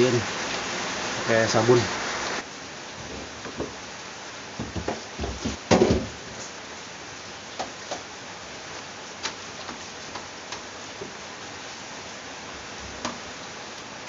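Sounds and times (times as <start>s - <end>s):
steady hiss: 0.0s - 14.0s
plastic fridge parts clattering: 4.6s - 6.2s.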